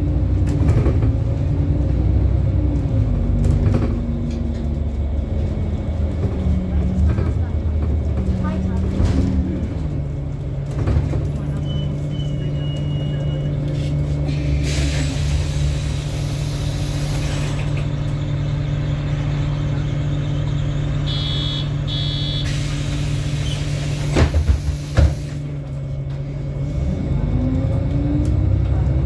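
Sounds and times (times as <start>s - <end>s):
bus diesel engine drone: 0.0s - 29.0s
road rumble: 0.0s - 29.0s
double electronic beep: 20.2s - 22.5s.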